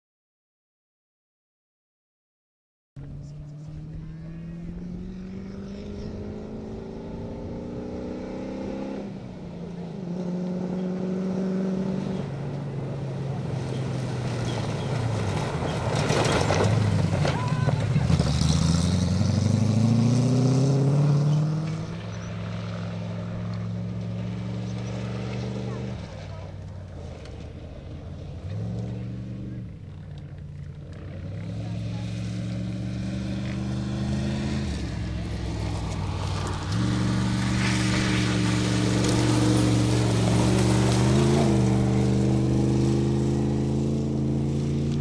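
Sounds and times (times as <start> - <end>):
rally car engines revving: 3.0 - 45.0
tyres on gravel: 12.0 - 45.0.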